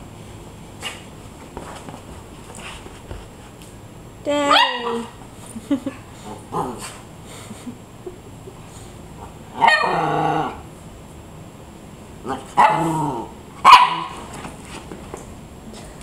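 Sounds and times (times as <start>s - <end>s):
small dog barking: 4.5s - 5.2s, 9.6s - 10.0s, 12.6s - 12.9s, 13.6s - 14.3s.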